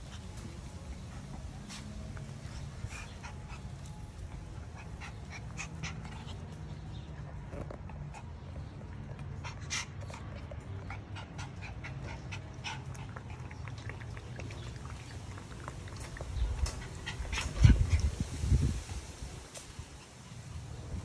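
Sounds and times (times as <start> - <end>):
puppies lapping water: 0.0 - 21.0
puppies crunching kibble: 10.0 - 19.7.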